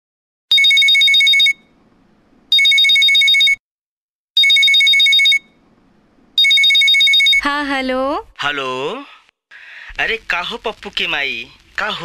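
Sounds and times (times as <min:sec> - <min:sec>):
phone ringing with bell ringtone: 0:00.5 - 0:01.7, 0:02.5 - 0:03.6, 0:04.4 - 0:05.6, 0:06.4 - 0:07.4.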